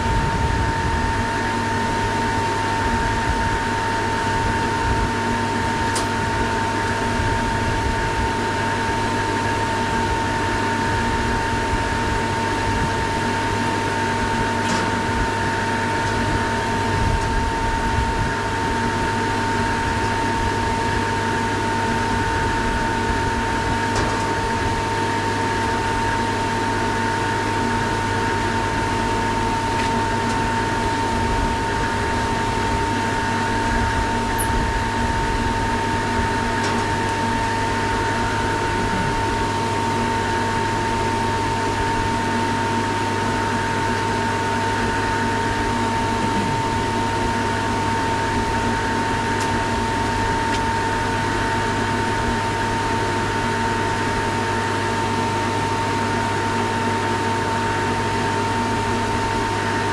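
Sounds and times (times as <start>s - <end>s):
machine humming with whining tone: 0.0s - 59.9s.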